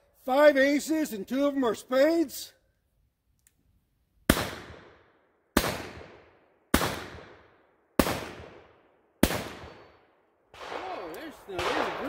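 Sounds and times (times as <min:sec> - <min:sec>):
revolver shots with echo: 0:10.6 - 0:12.0.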